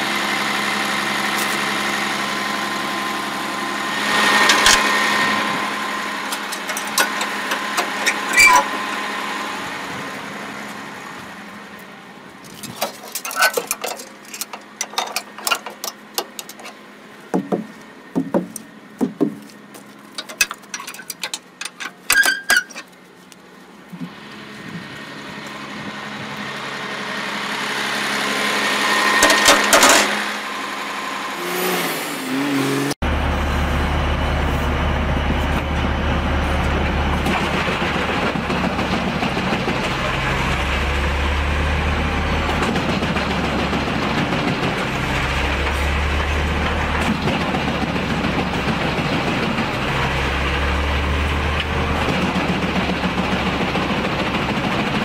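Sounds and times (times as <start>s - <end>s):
truck engine: 0.0s - 55.0s
wood shredder rumbling: 0.0s - 55.0s
metal chains clanking and rattling: 12.6s - 16.8s, 20.1s - 22.9s.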